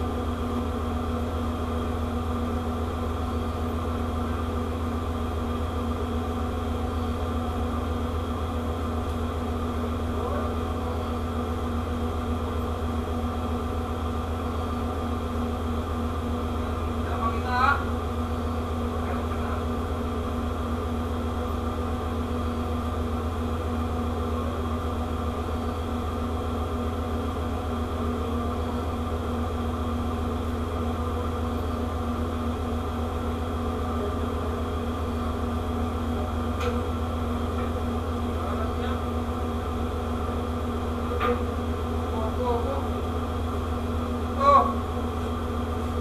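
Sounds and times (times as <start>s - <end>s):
ship machinery hum: 0.0s - 46.0s.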